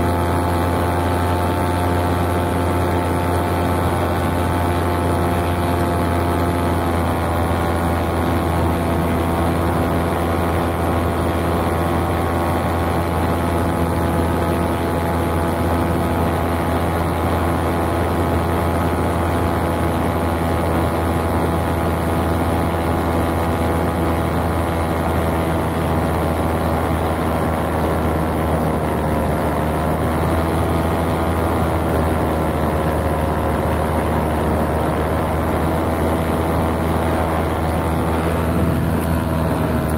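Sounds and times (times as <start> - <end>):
paramotor engine drone: 0.0 - 39.9.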